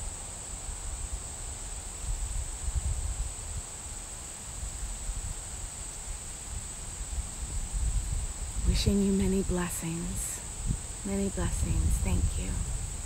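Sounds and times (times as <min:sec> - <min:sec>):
insects chorus: 0:00.0 - 0:13.0
wind buffeting microphone: 0:02.0 - 0:03.7, 0:06.1 - 0:13.0.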